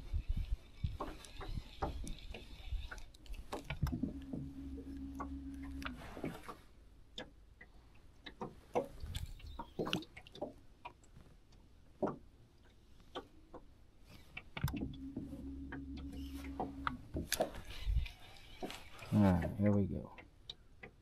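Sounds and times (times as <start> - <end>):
electric motor humming: 3.8 - 6.0, 14.7 - 17.0.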